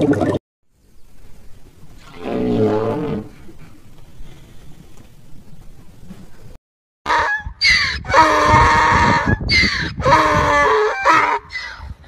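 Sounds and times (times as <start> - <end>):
donkey braying: 7.1 - 11.9.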